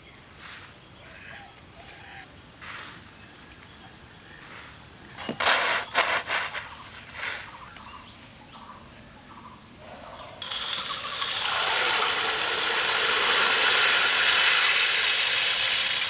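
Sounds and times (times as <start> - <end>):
dry seeds rattling in a steel bowl: 10.2 - 16.0.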